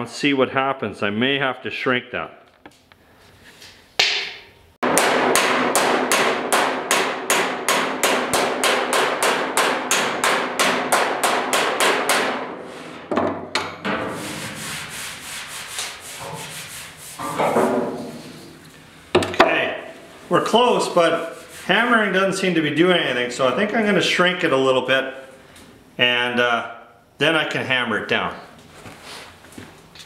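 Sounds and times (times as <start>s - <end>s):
hammer tapping on sheet steel: 4.0s - 14.0s
hand rubbing metal panel: 10.0s - 18.6s.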